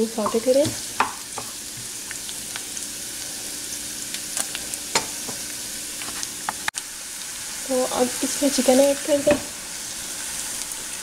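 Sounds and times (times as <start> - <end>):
garlic sizzling in hot oil: 0.0 - 11.0
wooden spatula knocking and scraping: 9.2 - 9.5.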